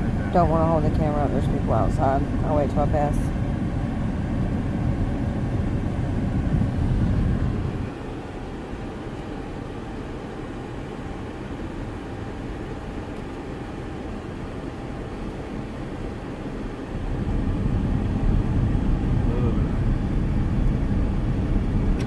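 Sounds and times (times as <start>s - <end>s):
pickup truck engine and road noise: 0.0s - 22.0s.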